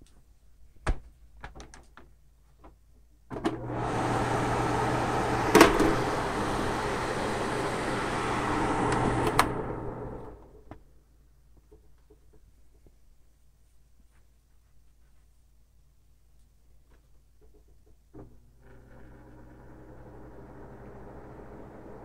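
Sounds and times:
fan blades rushing air: 3.6 - 10.6.

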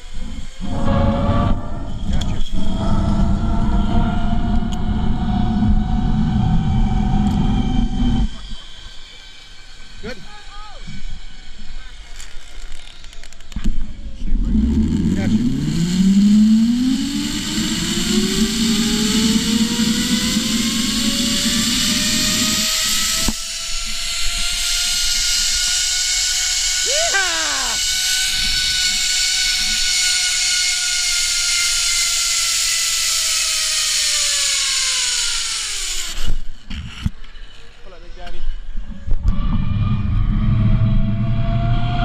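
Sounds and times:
zip-line pulleys whining on cable: 0.0 - 42.0.

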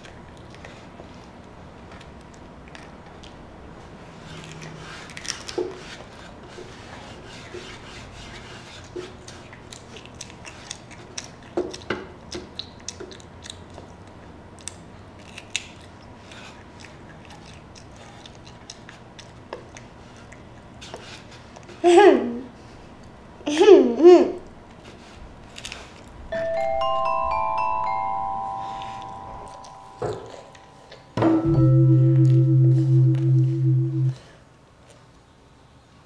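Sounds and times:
child chewing crunchy vegetable: 0.0 - 6.3, 8.8 - 21.8, 24.4 - 26.2.

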